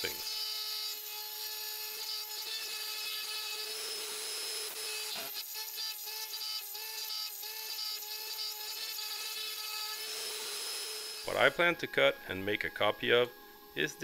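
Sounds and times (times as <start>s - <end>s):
router spindle whining: 0.0s - 14.0s.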